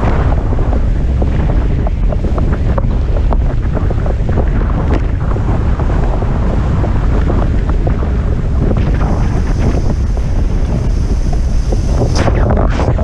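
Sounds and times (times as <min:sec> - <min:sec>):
wind buffeting microphone: 0:00.0 - 0:13.0
water spray splashing: 0:08.8 - 0:13.0
high steady whistle: 0:09.1 - 0:12.6.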